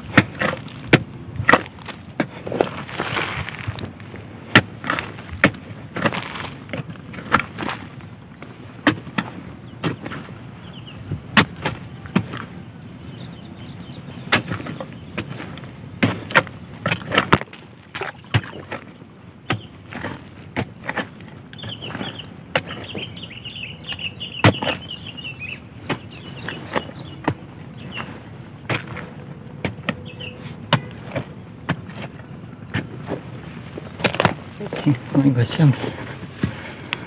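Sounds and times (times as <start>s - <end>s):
spade chopping into clay soil: 0.0s - 3.8s, 4.5s - 7.8s, 8.4s - 10.2s, 11.3s - 12.5s, 14.3s - 18.9s, 19.5s - 22.9s, 23.9s - 24.8s, 28.7s - 30.0s, 30.6s - 33.2s, 34.0s - 34.9s
high chirping call: 30.0s - 30.5s.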